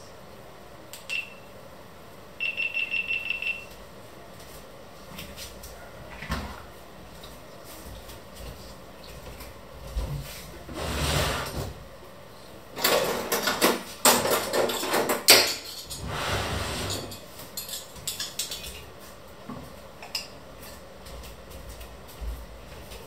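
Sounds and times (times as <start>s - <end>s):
plate and cutlery clattering: 12.8s - 18.8s.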